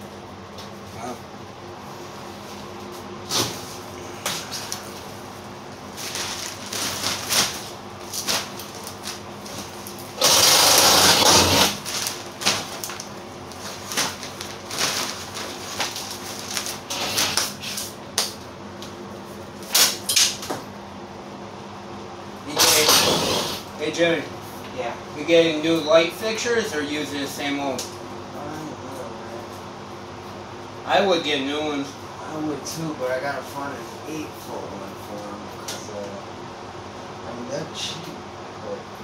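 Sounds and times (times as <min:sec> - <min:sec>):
steady hum: 0:00.0 - 0:39.0
cordless drill running: 0:10.2 - 0:11.8.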